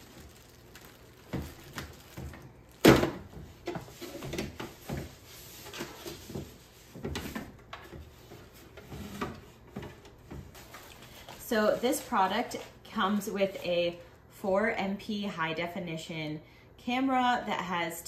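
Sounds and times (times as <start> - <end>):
paper wrapping rustling: 0.0 - 6.4.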